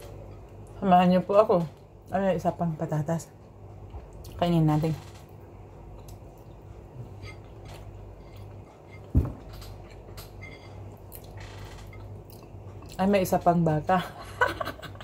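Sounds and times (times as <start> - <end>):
person chewing: 5.9 - 13.0.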